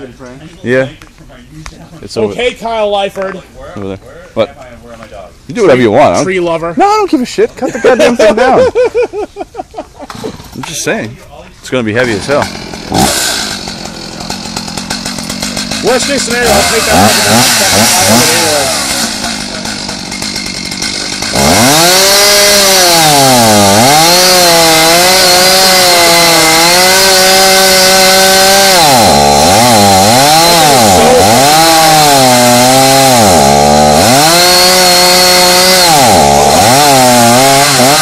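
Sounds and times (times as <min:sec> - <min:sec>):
chainsaw cutting into tree trunk: 0:10.0 - 0:10.8, 0:12.0 - 0:38.0.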